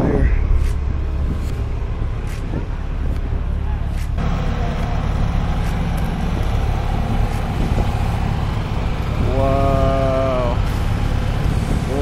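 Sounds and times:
low rumble of vehicles: 0.0s - 12.0s.

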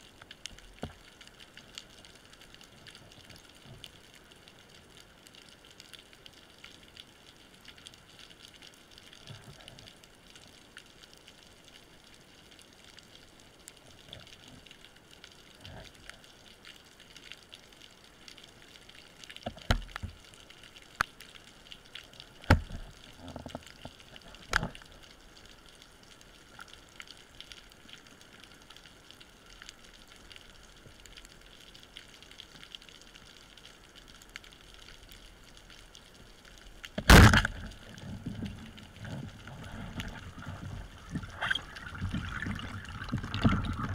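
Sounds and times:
underwater crackle of tiny clicks: 0.0s - 43.9s
sharp knocks underwater: 19.4s - 20.2s, 22.4s - 22.9s, 36.9s - 43.9s.

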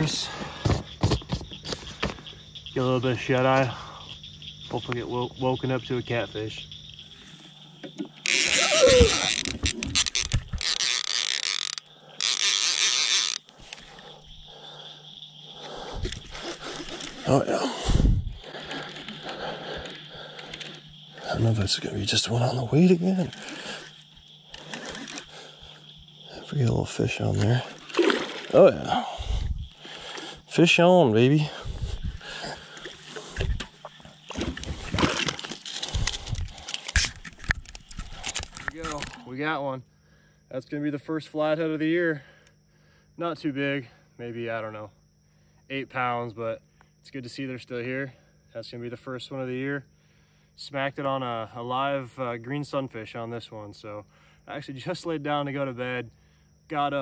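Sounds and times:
fishing reel clicker ratcheting: 8.2s - 13.6s
water sloshing and splashing: 27.2s - 30.4s, 32.6s - 36.6s.

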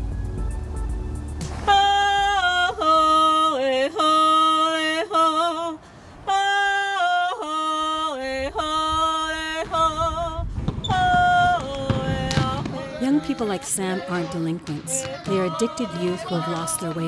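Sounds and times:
woman singing solo: 10.9s - 17.0s.

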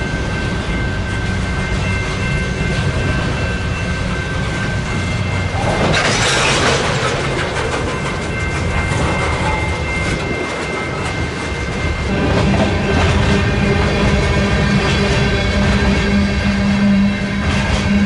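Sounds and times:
freight train rumbling past: 0.0s - 18.0s
wheels clicking over rail joints: 5.5s - 14.2s.

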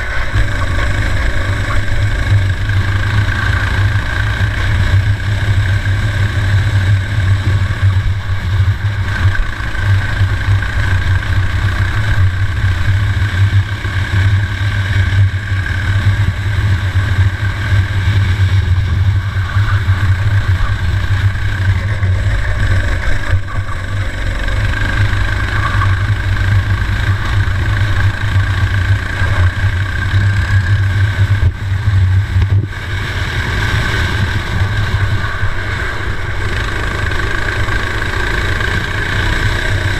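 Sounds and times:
racing kart engine: 0.0s - 39.9s.

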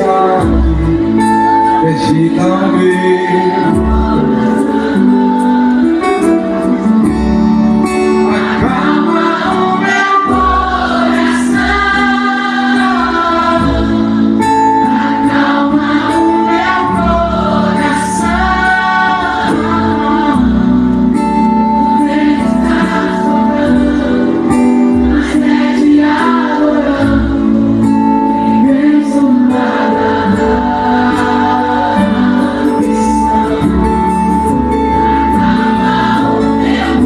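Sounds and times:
man singing: 0.0s - 5.4s, 8.6s - 10.4s
strummed acoustic guitar: 0.0s - 37.0s.

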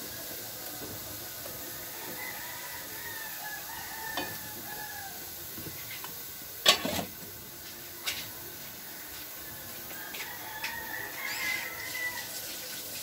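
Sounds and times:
rooster crowing: 1.6s - 5.4s, 8.8s - 12.7s.

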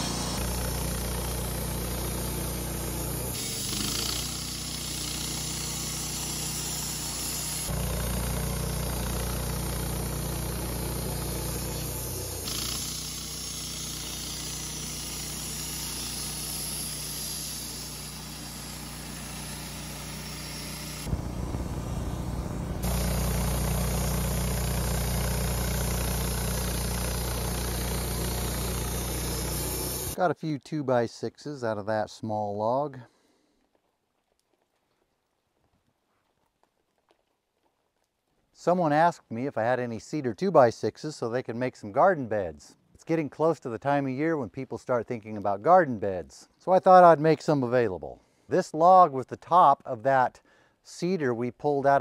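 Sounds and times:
bandsaw mill sawing wood: 0.0s - 30.2s.

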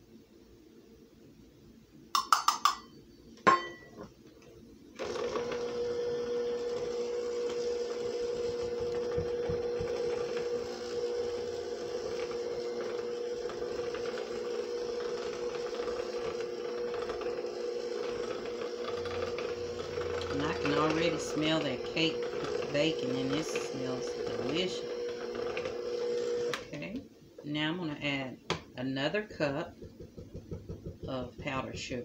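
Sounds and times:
electric hand mixer humming: 5.0s - 27.0s, 29.4s - 32.0s.

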